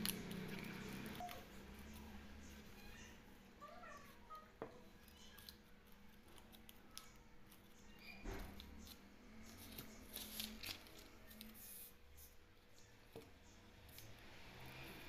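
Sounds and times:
paper rustling on a table: 0:09.5 - 0:12.3.

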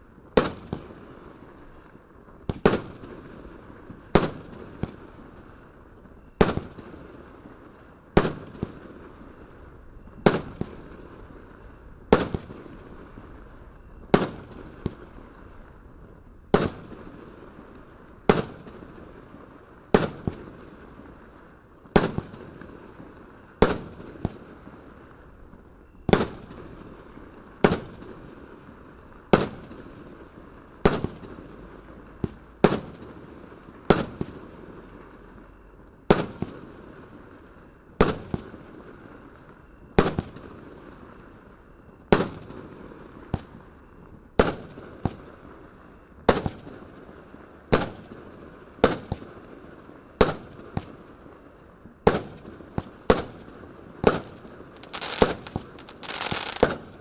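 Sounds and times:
firework shells bursting: 0:52.1 - 0:57.0
steady hiss: 0:53.3 - 0:57.0.

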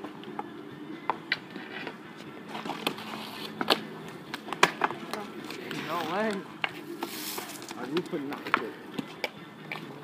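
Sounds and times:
hockey stick clacks on asphalt: 0:00.2 - 0:09.9.

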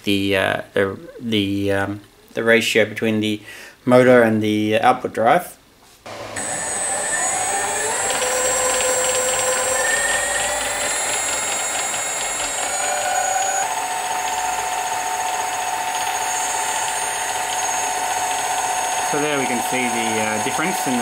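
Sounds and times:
electric motor whine: 0:06.1 - 0:21.0.

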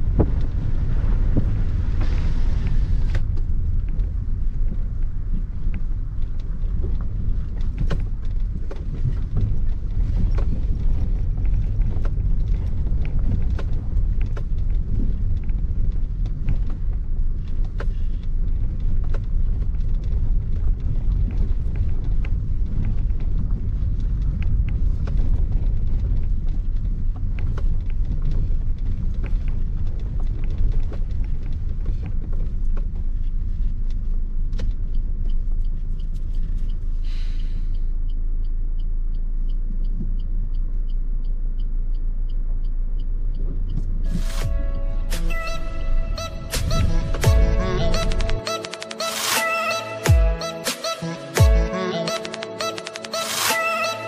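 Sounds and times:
car knocks and rattles: 0:00.0 - 0:36.7
car driving on rough road: 0:00.0 - 0:49.4.

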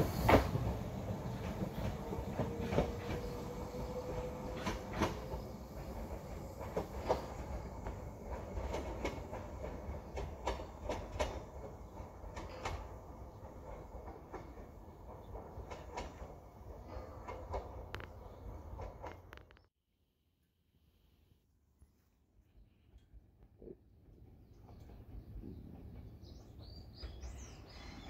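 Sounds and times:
low train rumble: 0:00.0 - 0:19.6, 0:22.7 - 0:28.0
train wheels clicking over rail joints: 0:00.0 - 0:19.6.

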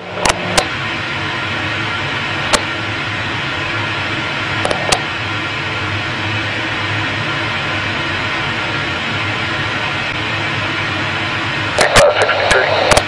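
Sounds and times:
faint low hum: 0:10.9 - 0:13.0
static hiss: 0:11.6 - 0:13.0.

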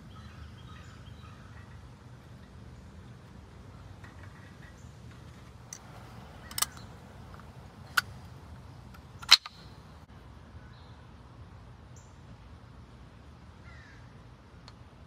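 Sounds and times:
brake pad clicks: 0:04.0 - 0:09.7.

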